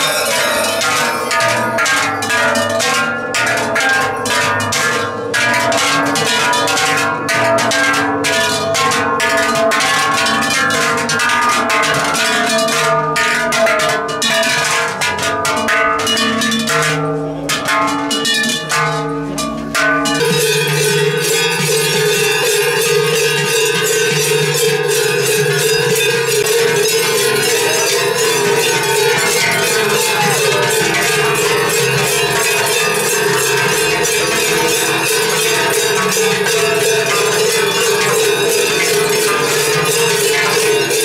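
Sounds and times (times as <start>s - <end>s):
brass crotal bells jingling: 0.0s - 4.5s, 19.2s - 41.0s
cowbells clanging: 0.0s - 41.0s.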